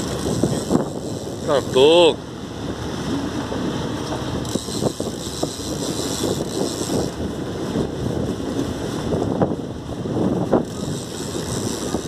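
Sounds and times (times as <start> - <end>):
wind rushing over microphone: 0.0 - 12.0.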